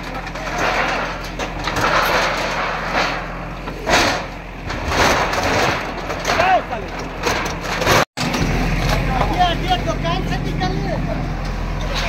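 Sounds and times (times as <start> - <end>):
sheet metal crashing and scraping: 0.0 - 9.5
diesel engine running: 0.0 - 12.0.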